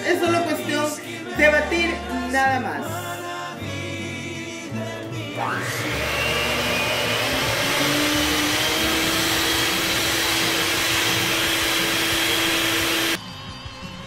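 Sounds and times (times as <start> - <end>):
electric hand mixer whining: 5.4 - 13.2.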